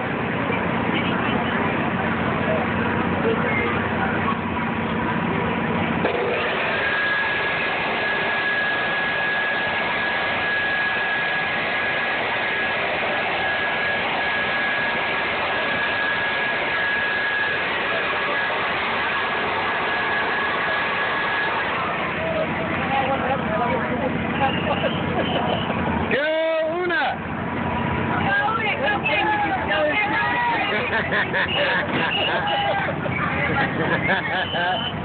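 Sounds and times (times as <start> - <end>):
air blower rushing: 3.8 - 23.3
thin steady whistle: 6.8 - 12.8, 24.3 - 25.7, 34.4 - 35.0.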